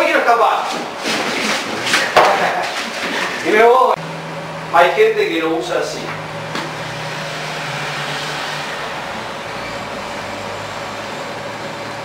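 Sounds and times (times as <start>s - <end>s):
low hum: 6.0s - 12.0s.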